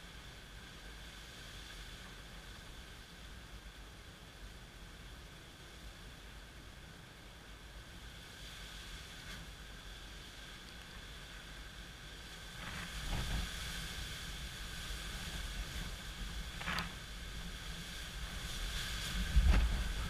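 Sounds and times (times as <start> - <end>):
gusty wind thrashing palm trees: 0.0 - 20.0
rain hiss: 0.0 - 20.0
wind buffeting microphone: 12.3 - 20.0.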